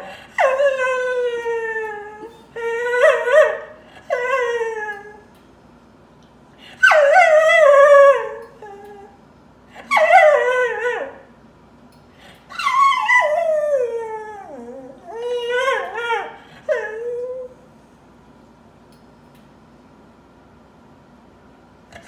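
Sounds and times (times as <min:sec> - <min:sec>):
dog whining howls: 0:00.3 - 0:05.3, 0:06.8 - 0:09.2, 0:09.8 - 0:11.3, 0:12.5 - 0:17.6.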